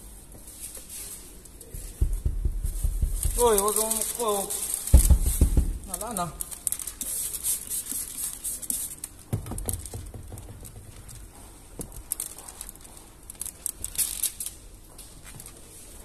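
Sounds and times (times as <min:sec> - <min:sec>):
plastic film crinkling: 0:00.5 - 0:16.0
low knock: 0:02.0 - 0:03.5, 0:05.0 - 0:05.9.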